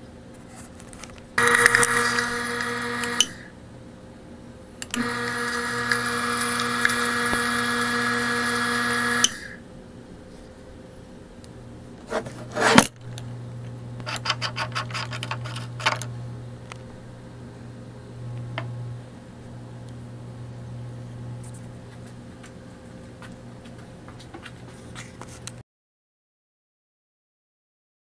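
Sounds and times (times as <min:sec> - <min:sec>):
pump motor humming and whining: 0:01.4 - 0:03.6, 0:04.9 - 0:09.6, 0:18.1 - 0:21.4.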